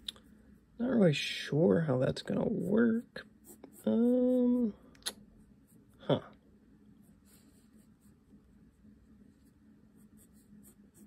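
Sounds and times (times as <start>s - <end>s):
pencil sketching on paper: 2.4s - 4.5s, 7.0s - 11.0s.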